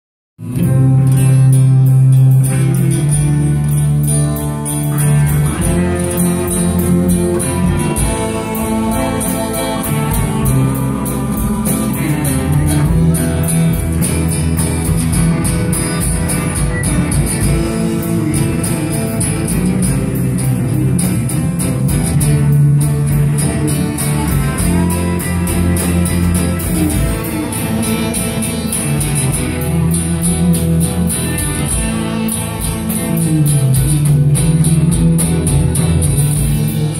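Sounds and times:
live rock band playing: 0:00.4 - 0:36.9.

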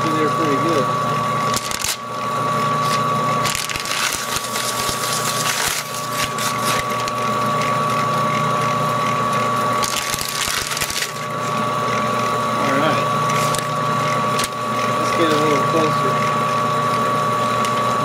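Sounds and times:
lathe and gears whining: 0:00.0 - 0:18.0
paper crackling and tearing: 0:01.5 - 0:02.0, 0:02.8 - 0:07.2, 0:09.8 - 0:11.4, 0:13.3 - 0:13.7.

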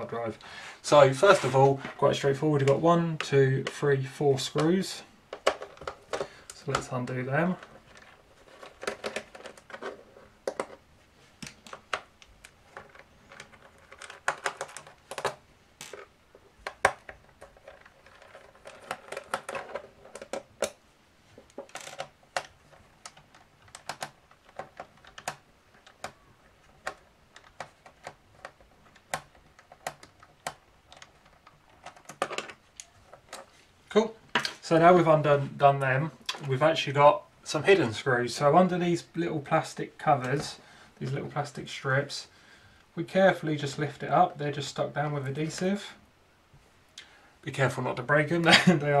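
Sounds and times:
plastic case handling: 0:05.3 - 0:10.8, 0:11.4 - 0:20.8.

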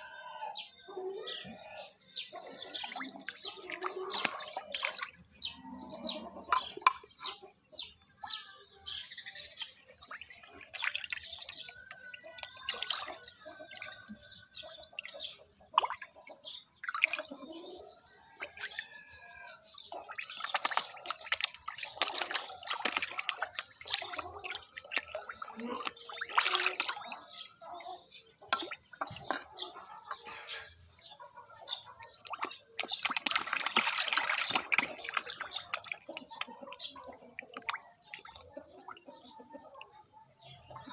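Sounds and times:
fish splashing at water surface: 0:02.7 - 0:05.3, 0:09.4 - 0:14.2, 0:16.8 - 0:17.4, 0:20.0 - 0:29.6, 0:32.1 - 0:39.0.

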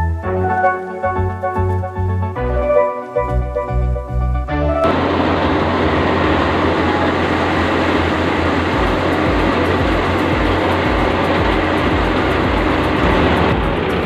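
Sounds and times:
wheat thresher running: 0:04.8 - 0:14.0.

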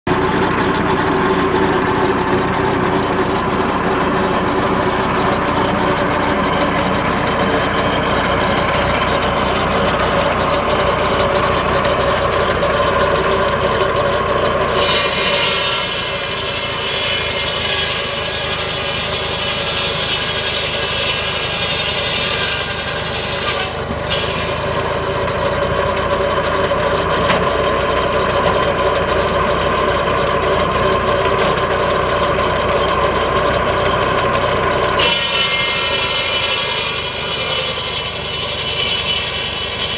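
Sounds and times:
tractor engine running: 0:00.1 - 0:35.0
circular saw blade whining: 0:00.2 - 0:28.2, 0:30.1 - 0:39.9
saw cutting log rasp: 0:14.7 - 0:24.6, 0:35.0 - 0:39.9.

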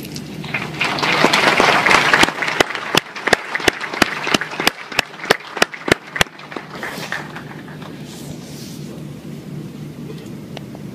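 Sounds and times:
rhythmic clapping in unison: 0:00.4 - 0:08.0
audience applauding: 0:00.5 - 0:08.0.

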